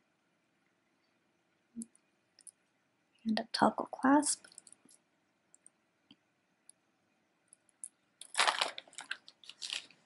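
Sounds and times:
plastic bag crinkling: 8.2s - 10.0s.

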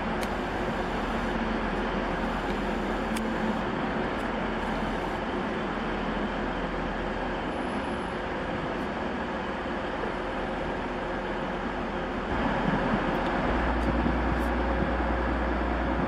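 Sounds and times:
train rumbling past: 5.3s - 16.0s.

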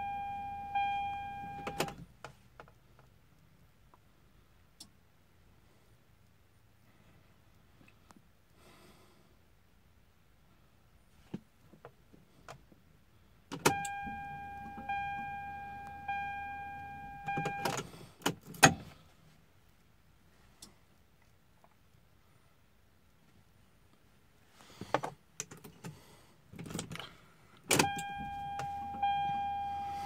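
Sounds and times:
dashboard warning chime: 0.0s - 2.0s, 13.6s - 17.8s, 27.7s - 30.0s
car key clicks: 13.5s - 17.8s
low hum: 13.7s - 17.6s, 27.9s - 30.0s.

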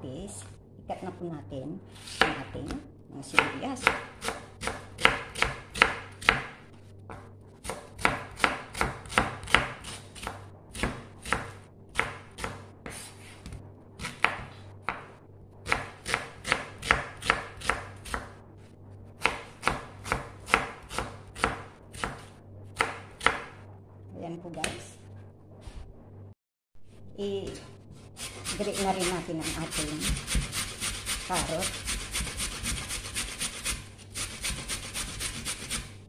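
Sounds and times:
knife chopping onion on wooden board: 3.4s - 13.0s, 14.0s - 18.4s, 19.2s - 23.6s, 28.2s - 36.0s.

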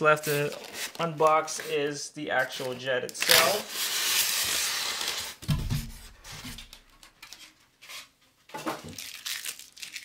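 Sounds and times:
styrofoam scraping against foam: 0.0s - 6.7s.

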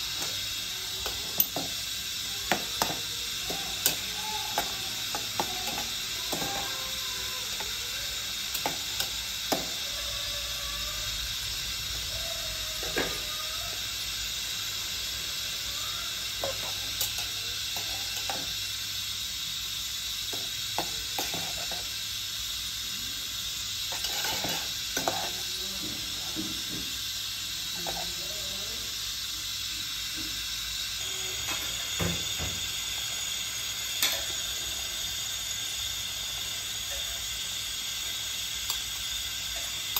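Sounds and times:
water boiling in a pot: 0.0s - 39.9s
metal tongs clicking on a pot: 2.5s - 6.6s, 16.5s - 18.5s.

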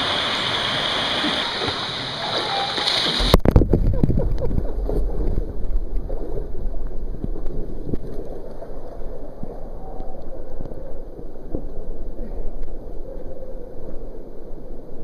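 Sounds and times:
creek water sloshing and gurgling: 0.0s - 10.0s
water buffeting microphone: 0.0s - 15.0s.

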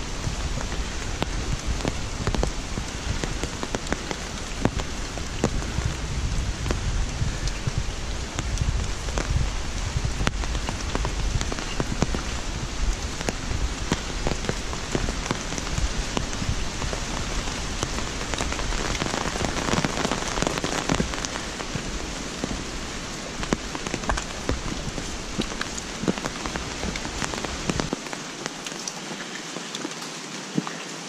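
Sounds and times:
low rumble: 0.0s - 19.6s
rain on leaves and paving: 0.0s - 31.0s
raindrops pattering: 0.0s - 31.0s.

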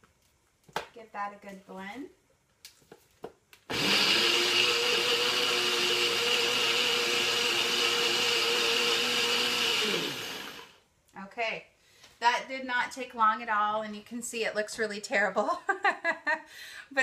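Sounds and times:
blender running: 3.7s - 10.8s.

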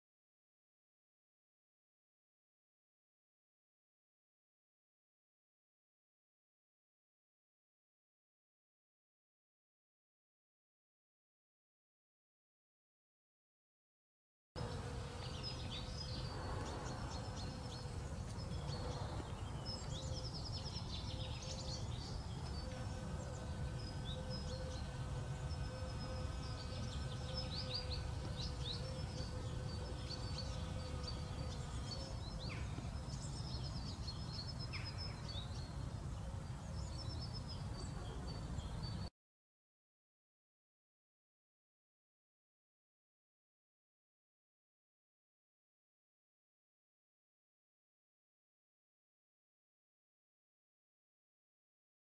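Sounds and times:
faint steady hum: 14.6s - 39.1s
small birds chirping and trilling: 14.6s - 39.1s.

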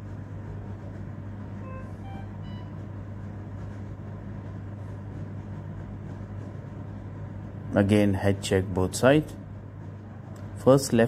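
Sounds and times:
short high beeps: 1.6s - 2.8s.

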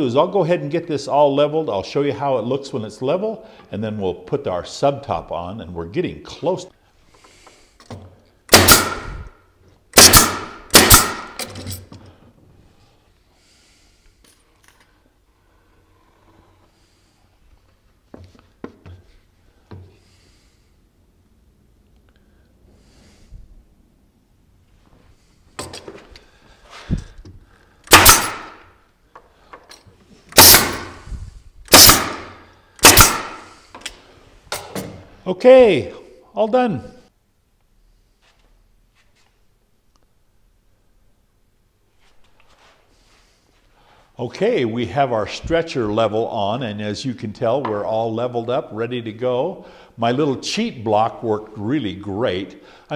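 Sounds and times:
pneumatic nail gun shots: 8.5s - 11.6s, 27.9s - 28.7s, 30.3s - 33.6s.

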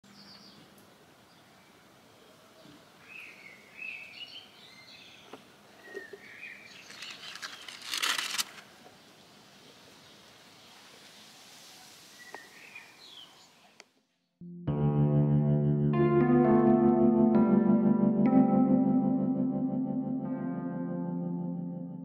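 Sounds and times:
small birds chirping: 0.1s - 8.1s, 12.1s - 13.9s
loud rustle: 6.7s - 8.7s.

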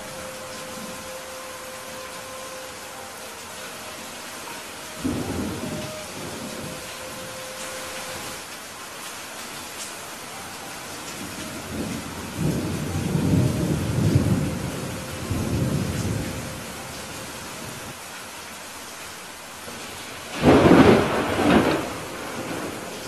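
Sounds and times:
rain hissing: 0.0s - 23.0s
thunder rumbling: 4.9s - 8.4s, 10.9s - 17.9s, 19.8s - 23.0s
thunder clap: 20.3s - 22.9s.

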